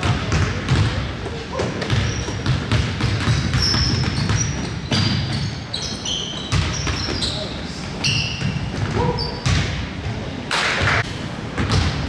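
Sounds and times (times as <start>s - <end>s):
basketball bouncing: 0.0s - 7.2s, 8.4s - 9.8s, 11.6s - 12.0s
sneaker squeaks: 1.4s - 9.8s.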